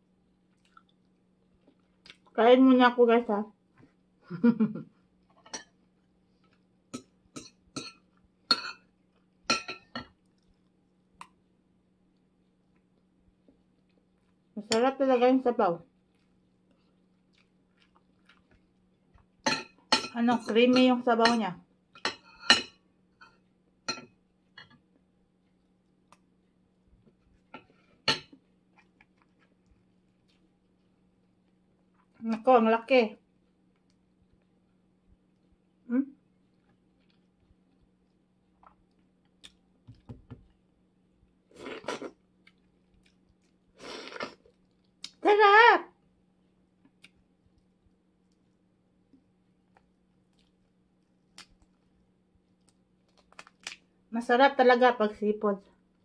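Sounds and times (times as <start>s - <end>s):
cutlery clinking on a plate: 7.0s - 8.9s, 9.5s - 10.1s, 22.0s - 24.7s.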